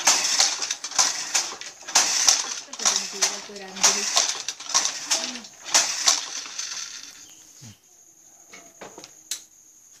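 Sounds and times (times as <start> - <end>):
wooden handloom clacking: 0.0 - 7.2.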